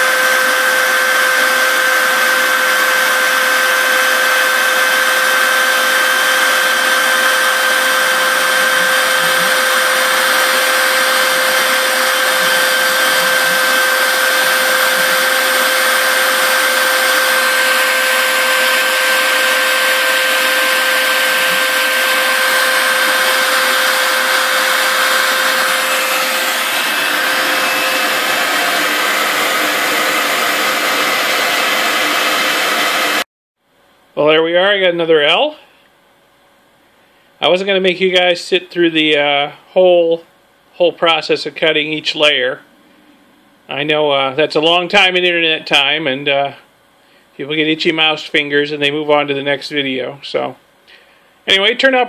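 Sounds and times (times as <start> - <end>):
router spindle whine: 0.0 - 33.2
shop vacuum rushing air: 0.0 - 33.3.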